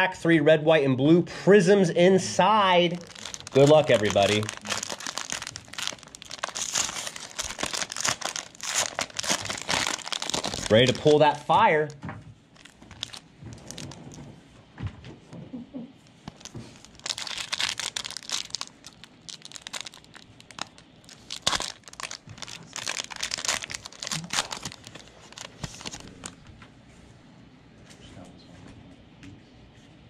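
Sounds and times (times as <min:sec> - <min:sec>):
wrapper crinkling and tearing: 0:02.9 - 0:12.0, 0:12.6 - 0:14.2, 0:16.2 - 0:26.5.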